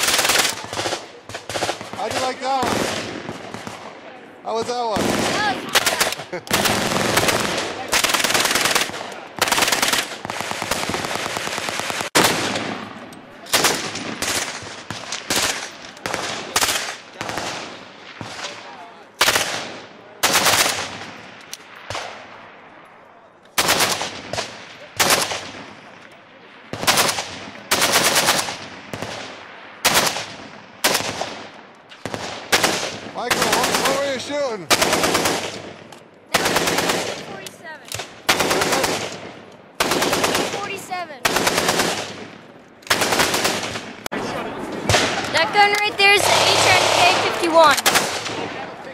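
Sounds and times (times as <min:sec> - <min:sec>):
gunshots echoing: 0:00.0 - 0:22.6, 0:23.6 - 0:26.0, 0:26.7 - 0:44.1, 0:44.7 - 0:48.9
automatic gunfire burst: 0:05.0 - 0:12.6, 0:32.1 - 0:35.6, 0:36.3 - 0:37.3, 0:38.3 - 0:39.2, 0:39.8 - 0:42.2, 0:42.9 - 0:43.9, 0:46.2 - 0:48.4.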